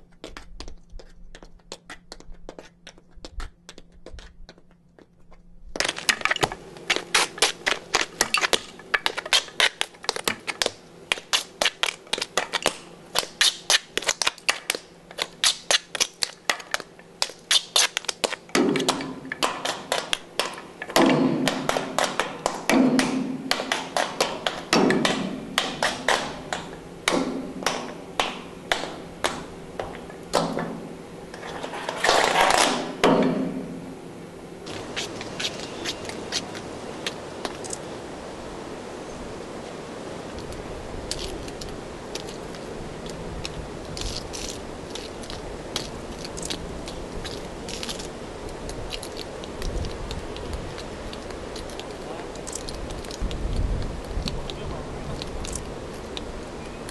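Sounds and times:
tap dancing on metal grating: 0:00.0 - 0:33.7
tap shoes on stone: 0:00.1 - 0:30.6.

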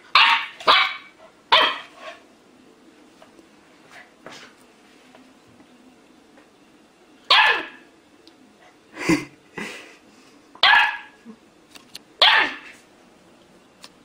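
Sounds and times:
puppy barking in short yaps: 0:07.3 - 0:07.8, 0:12.2 - 0:12.7.

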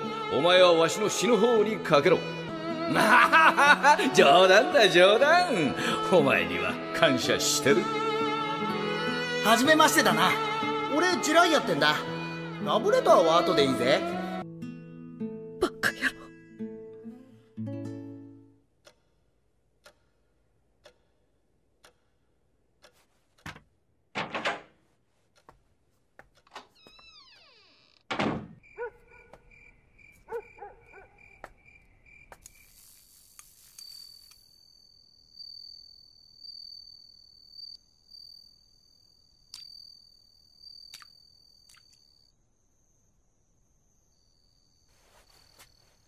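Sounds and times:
clock ticking: 0:18.7 - 0:23.9
faint crickets chirping: 0:27.2 - 0:46.0
thump: 0:28.1 - 0:28.6.

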